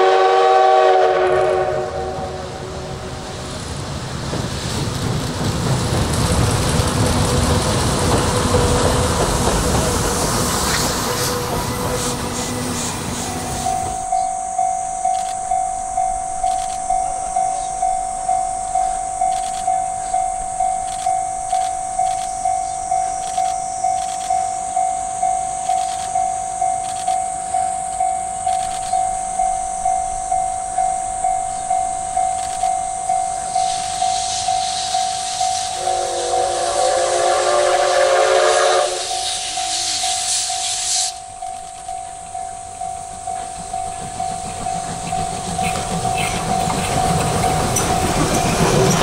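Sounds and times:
steady high hiss: 0:00.0 - 0:49.0
level-crossing warning bell ringing: 0:11.0 - 0:49.0.

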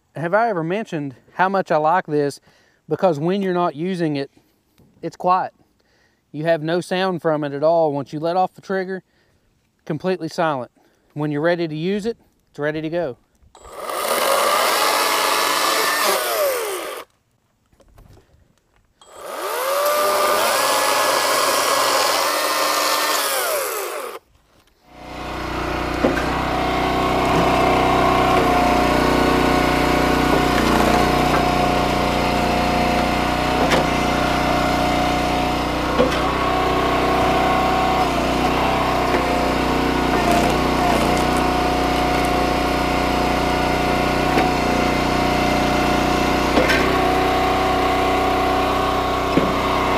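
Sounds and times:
battery chainsaw cutting wood: 0:13.6 - 0:17.1, 0:19.0 - 0:49.9
small gas engine running: 0:13.6 - 0:17.1, 0:19.0 - 0:24.2, 0:24.8 - 0:49.9.

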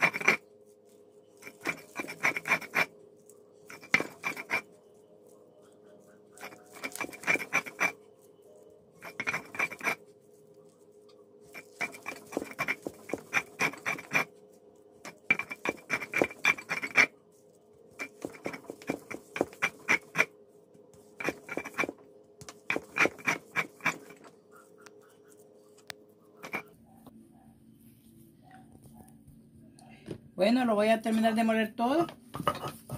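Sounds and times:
stone roller grinding on stone: 0:00.0 - 0:00.5, 0:01.3 - 0:02.9, 0:03.7 - 0:04.8, 0:06.3 - 0:08.1, 0:09.0 - 0:10.1, 0:11.5 - 0:14.4, 0:15.0 - 0:17.2, 0:17.9 - 0:20.4, 0:21.0 - 0:24.4, 0:26.4 - 0:26.8.

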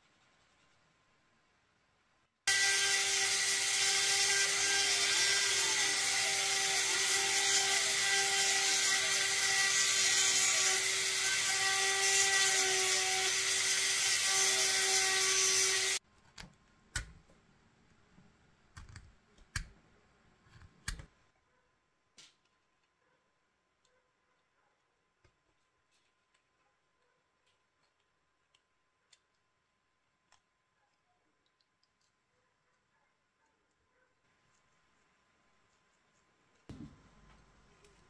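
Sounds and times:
rotary tool cutting plastic: 0:02.5 - 0:16.0.

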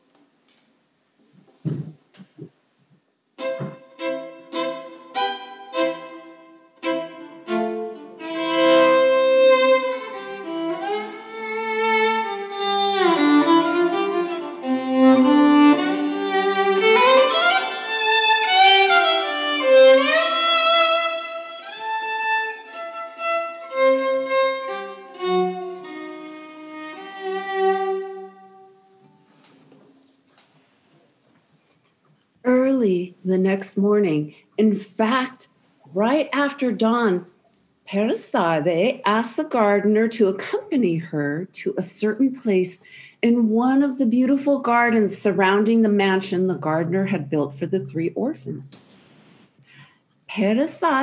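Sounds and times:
solo violin playing: 0:03.4 - 0:29.0.

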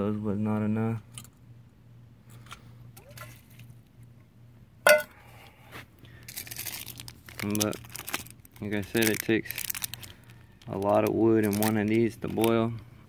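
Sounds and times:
metal saucepan clanking on concrete: 0:04.9 - 0:05.1.

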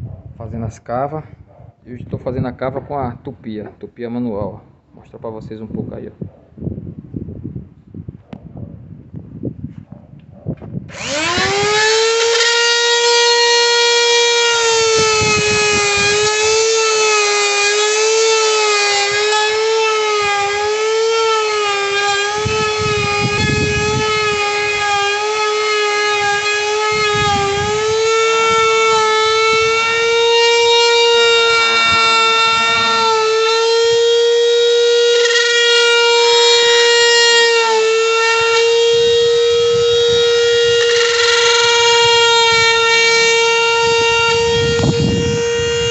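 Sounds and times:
router motor whining: 0:10.9 - 0:45.9.

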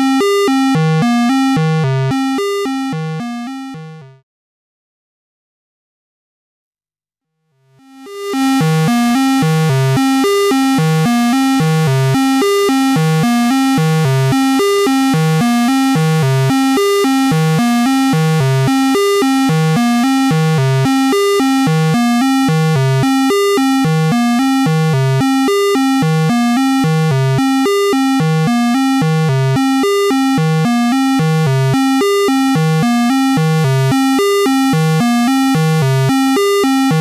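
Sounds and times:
distorted synthesizer notes: 0:08.4 - 0:37.0.

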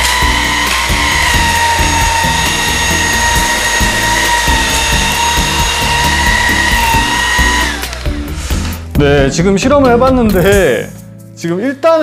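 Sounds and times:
cordless vacuum whine: 0:00.0 - 0:08.7.

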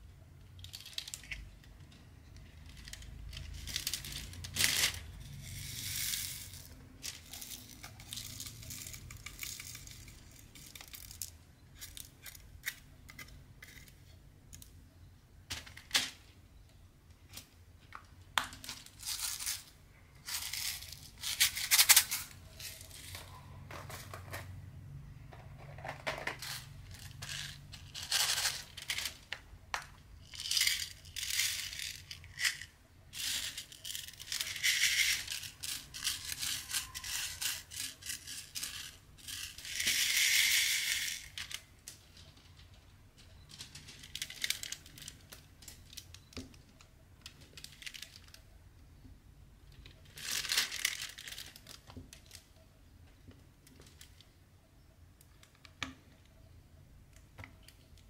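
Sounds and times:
plastic beads rattling in a tray: 0:02.4 - 0:14.7, 0:18.6 - 0:24.5, 0:25.6 - 0:48.4, 0:49.8 - 0:52.5.

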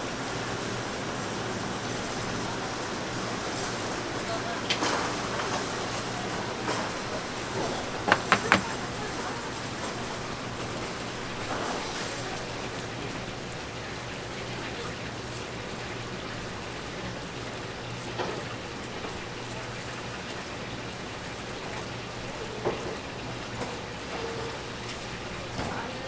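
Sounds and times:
light knocks: 0:08.1 - 0:08.8.

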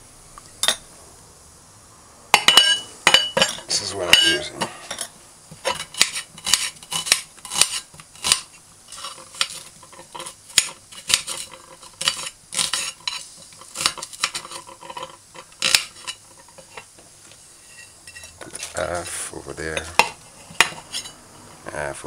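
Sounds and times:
knife slicing onion: 0:05.6 - 0:14.7, 0:15.4 - 0:16.8.

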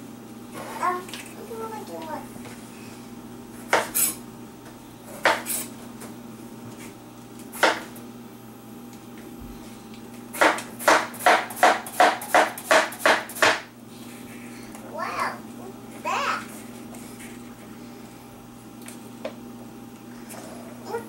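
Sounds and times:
knife chopping on wooden board: 0:10.4 - 0:13.7.

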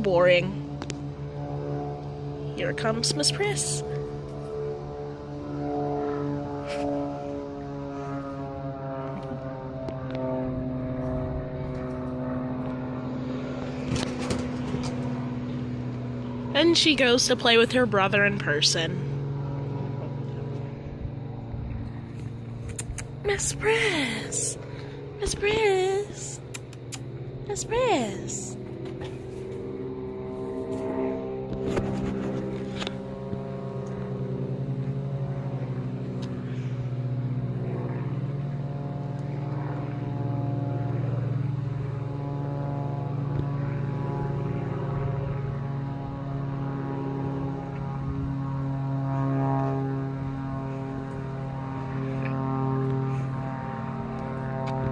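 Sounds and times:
engine drone: 0:00.0 - 0:54.9
sharp clicks: 0:22.7 - 0:23.2, 0:26.5 - 0:27.2.

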